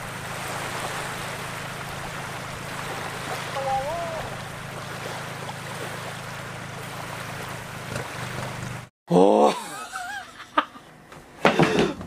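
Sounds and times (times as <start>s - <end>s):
steady wash of noise: 0.0s - 8.9s
man groaning loudly: 9.1s - 9.8s.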